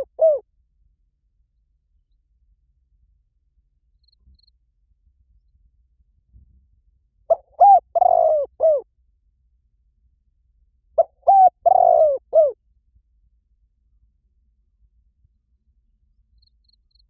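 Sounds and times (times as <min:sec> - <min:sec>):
dove cooing: 0:00.0 - 0:00.4, 0:07.3 - 0:08.8, 0:11.0 - 0:12.6.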